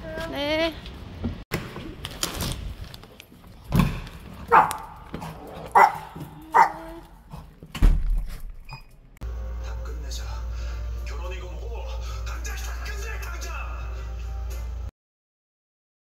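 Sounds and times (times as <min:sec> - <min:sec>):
small dog barking: 0:04.5 - 0:05.0, 0:05.7 - 0:07.0.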